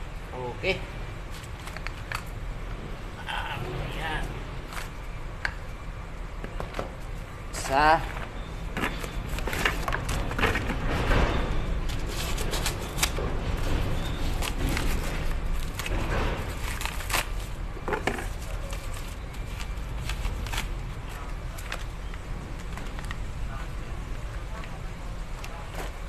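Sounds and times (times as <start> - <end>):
steady low hum: 0.0 - 26.0
clicks and knocks of engine parts: 1.2 - 2.4, 6.4 - 26.0.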